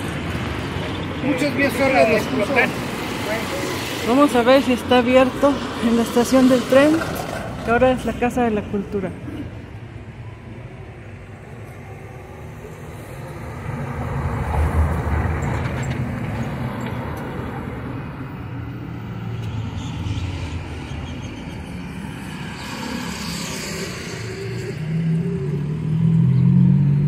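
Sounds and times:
cars and vans passing: 0.0 - 27.0.

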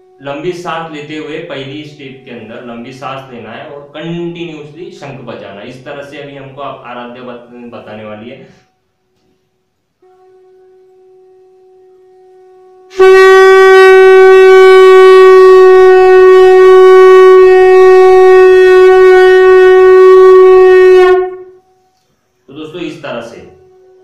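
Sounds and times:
conch shell blown: 0.0 - 4.8, 8.4 - 24.0.

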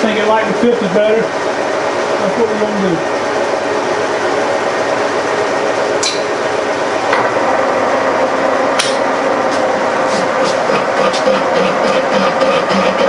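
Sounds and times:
milling machine cutting metal: 5.4 - 13.0.

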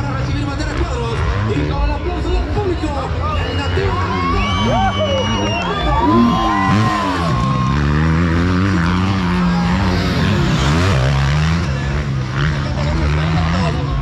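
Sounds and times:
dirt bike engine revving: 0.0 - 14.0
spectators shouting: 3.0 - 12.5.

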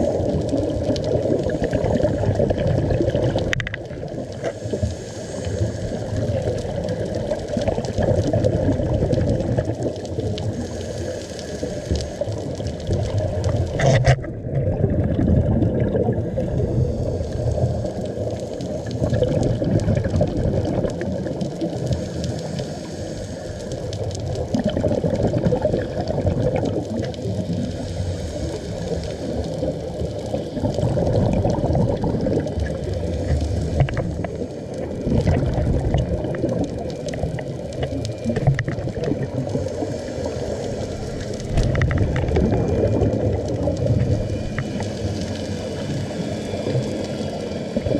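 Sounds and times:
bubbles gurgling underwater: 0.0 - 22.6, 23.6 - 47.9
diver breathing through regulator: 4.4 - 6.6, 10.4 - 12.5, 16.4 - 19.4, 21.8 - 24.0, 27.3 - 31.8, 38.1 - 47.5.

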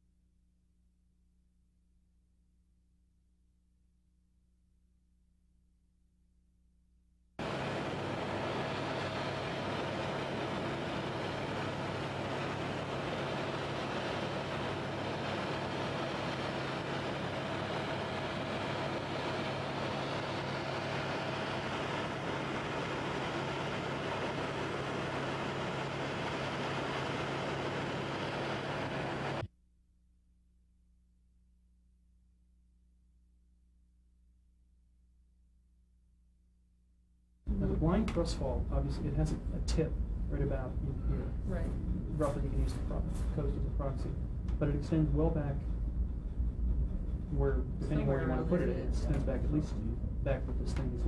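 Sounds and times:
aircraft engine noise on board: 7.4 - 29.5, 37.5 - 51.0.

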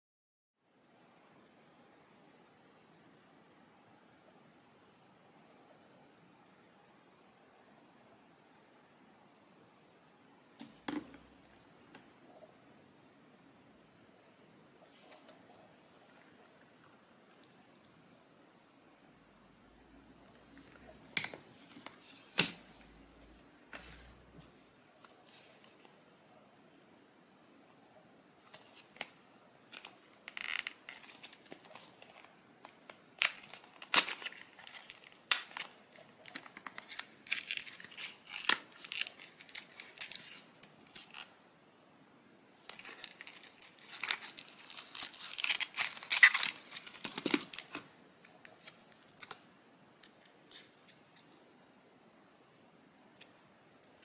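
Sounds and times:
cardboard and wrapper tearing: 28.5 - 41.3, 42.6 - 49.4.

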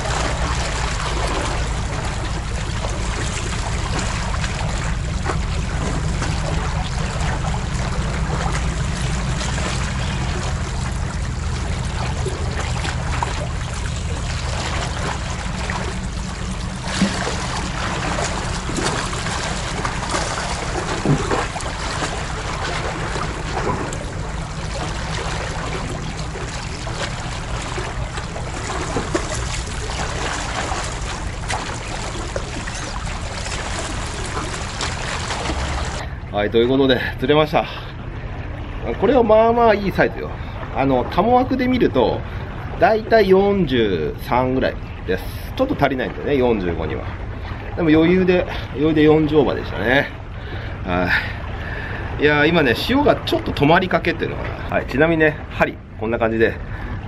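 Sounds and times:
low rumble: 0.0 - 45.1
sea water washing against breakwater: 0.0 - 57.0.

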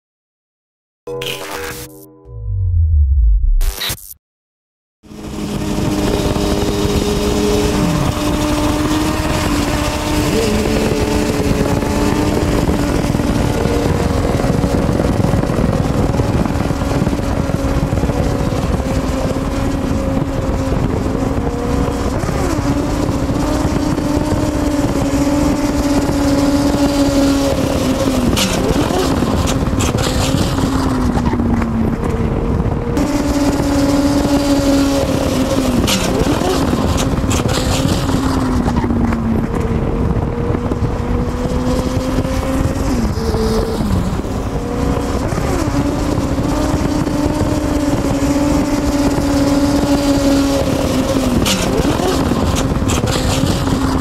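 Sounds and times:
motorcycle engines revving high: 5.0 - 54.0
wind and road noise: 5.0 - 54.0.

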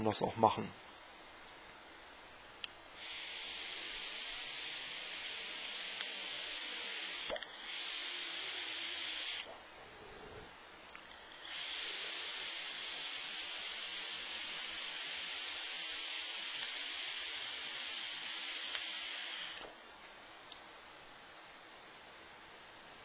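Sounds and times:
vaporiser hissing: 2.7 - 19.8.

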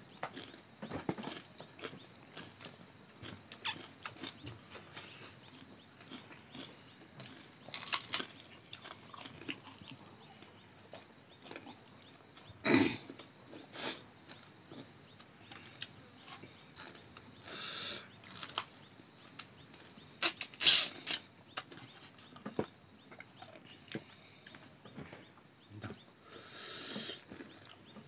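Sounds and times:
people chewing food: 0.0 - 28.0
steady high hiss: 11.9 - 21.5, 23.8 - 27.4.

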